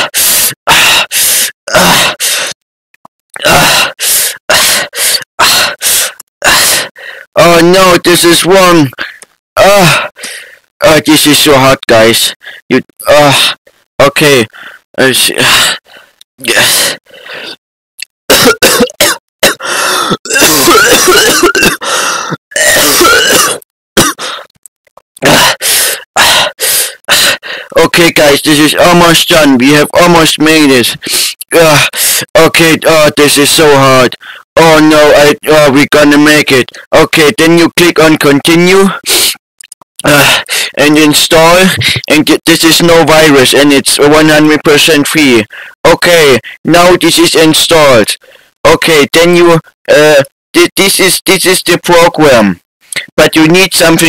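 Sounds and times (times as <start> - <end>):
man groaning and gasping: 0.0 - 2.6, 3.4 - 7.3, 9.0 - 10.6, 14.5 - 17.6, 18.4 - 24.5, 25.2 - 27.8, 40.0 - 40.8
person coughing: 18.3 - 22.0, 22.6 - 24.4, 25.2 - 25.6.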